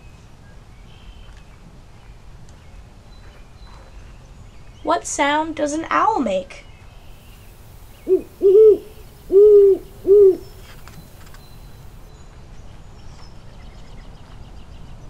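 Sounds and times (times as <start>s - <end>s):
owl hooting: 7.8s - 12.0s.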